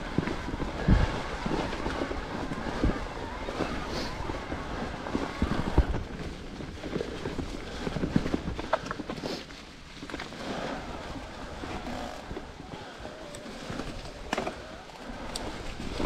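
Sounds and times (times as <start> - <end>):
bike tyres and frame rattling: 0.0 - 16.0
wind on microphone: 0.0 - 16.0.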